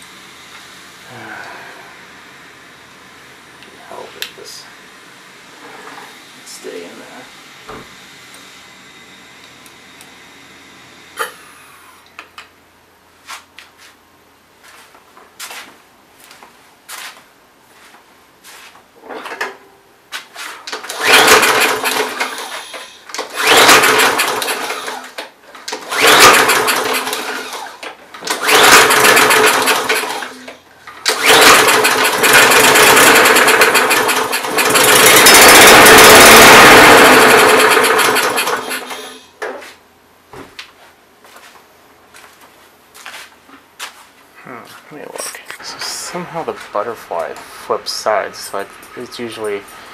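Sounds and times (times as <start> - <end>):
lawn mower engine starting and dying: 20.7 - 39.3.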